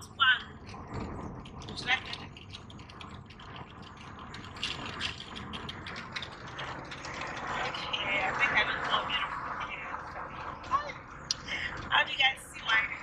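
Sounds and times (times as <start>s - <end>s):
car road and engine rumble: 0.0s - 13.0s
quick irregular clicks and rattles: 0.4s - 8.6s.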